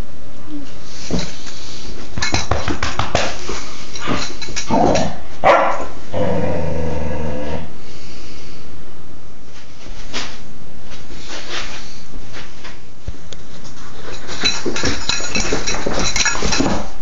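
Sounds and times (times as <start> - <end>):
puppy growling bark: 4.7 - 6.9
puppy barking: 5.4 - 5.9.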